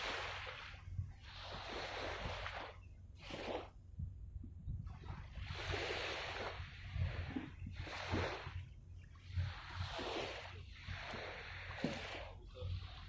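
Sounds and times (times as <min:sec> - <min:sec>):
small waves washing ashore: 0:00.0 - 0:03.8, 0:04.8 - 0:13.0
low rumble: 0:02.9 - 0:05.6.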